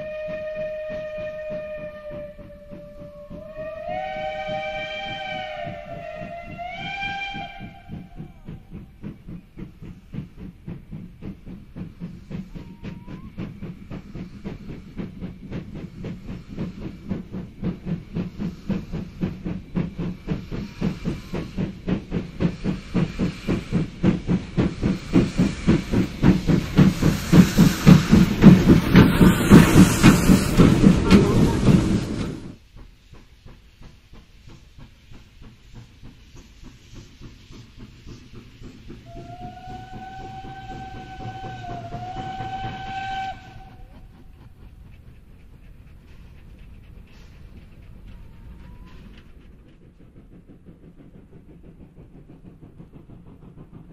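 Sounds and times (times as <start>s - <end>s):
steam whistle: 0.0s - 8.5s, 39.0s - 44.1s
steam locomotive chuffing: 0.0s - 53.9s.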